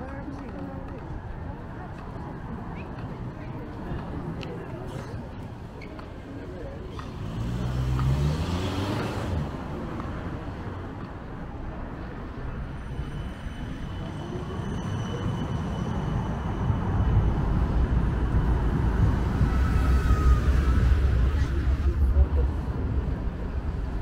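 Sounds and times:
electric tram passing on rails: 0.0 - 8.2, 8.9 - 24.0
street traffic rumble: 0.0 - 24.0.

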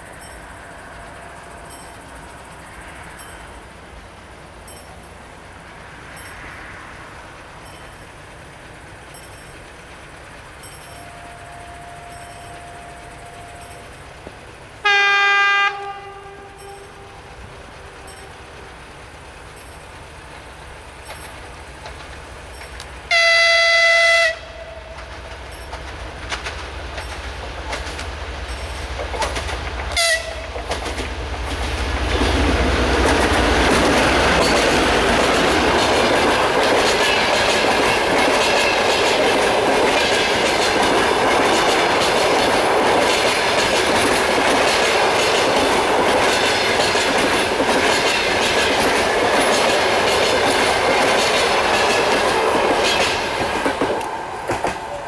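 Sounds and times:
locomotive engine rumble: 0.0 - 55.0
passing train rushing noise: 0.0 - 55.0
wheels clacking over rail joints: 0.0 - 55.0
train horn blast: 10.9 - 14.0, 14.8 - 18.8, 23.1 - 25.3, 29.9 - 30.6.

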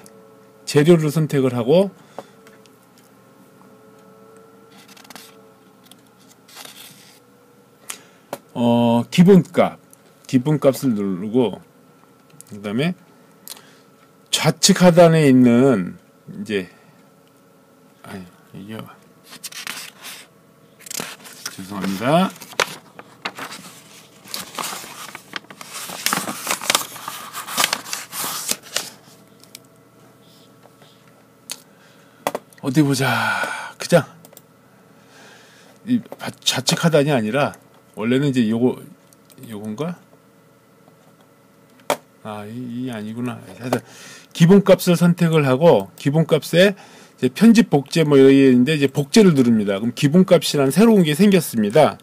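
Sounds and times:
paper pages rustling: 4.7 - 5.4, 6.2 - 7.2, 19.2 - 29.6.

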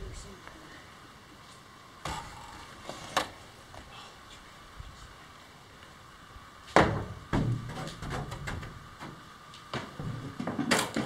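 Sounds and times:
fiberglass scraping rustle: 1.4 - 5.4.

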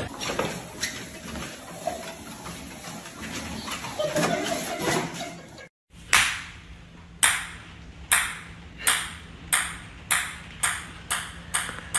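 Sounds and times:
small hard ball bouncing: 7.2 - 11.9.

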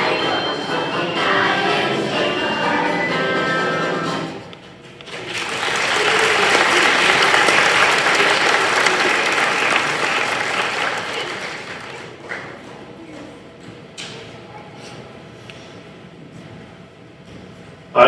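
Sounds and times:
audience applauding: 5.0 - 12.7.

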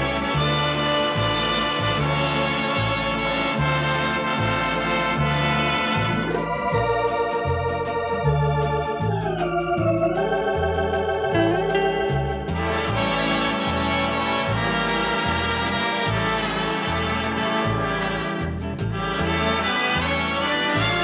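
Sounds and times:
big band brass section: 0.0 - 7.2, 12.5 - 21.0
electronic organ with vibrato: 0.0 - 21.0
pulsing bass line: 0.0 - 21.0.

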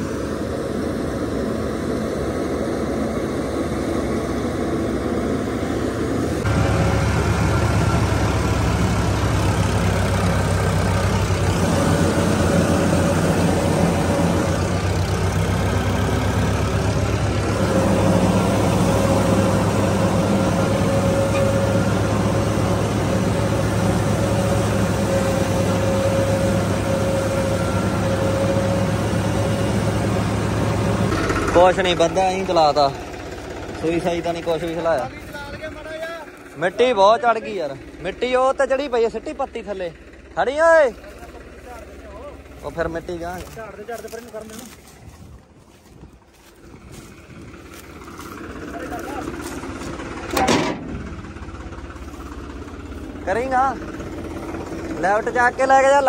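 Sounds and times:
tractor engine under load: 0.0 - 56.0.

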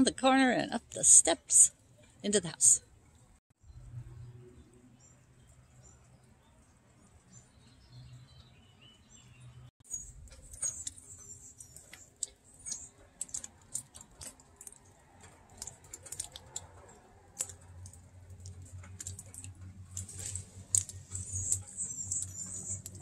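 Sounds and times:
raindrops dripping on leaves: 10.3 - 23.0.

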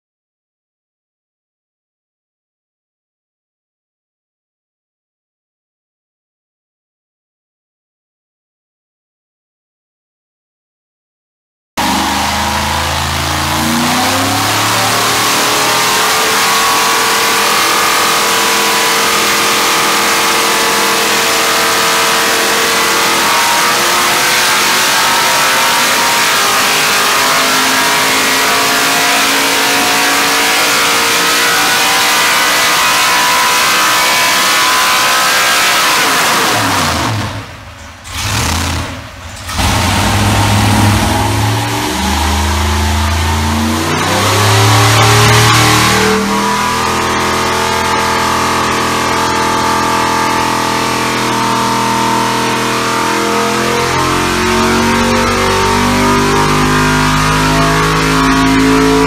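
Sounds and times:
vee eight engine revving: 11.8 - 59.0.

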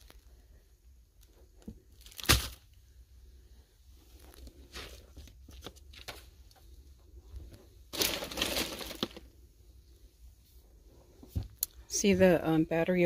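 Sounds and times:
plastic crinkly rustle: 7.4 - 9.4.

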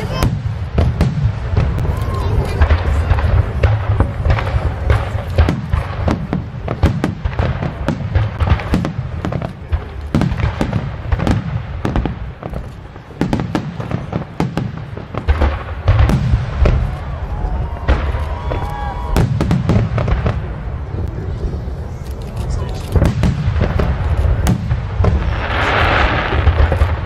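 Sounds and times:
fireworks booming and crackling: 0.0 - 27.0.

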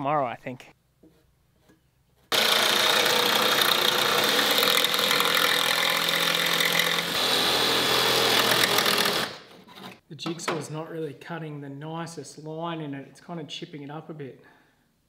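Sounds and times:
jigsaw cutting fiberglass: 2.3 - 9.5.

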